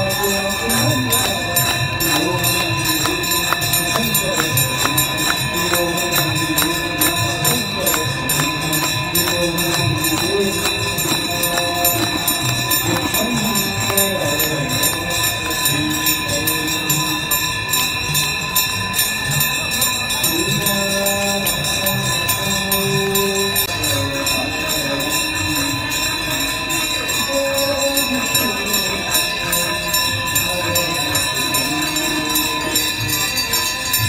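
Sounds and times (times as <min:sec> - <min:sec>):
bells rung rhythmically: 0:00.0 - 0:34.0
continuous high ringing: 0:00.0 - 0:34.0
sung devotional chant: 0:00.0 - 0:34.0.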